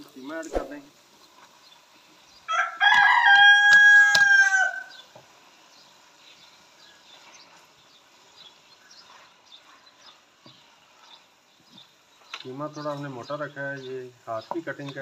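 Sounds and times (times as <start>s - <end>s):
rooster crowing: 2.5s - 5.0s.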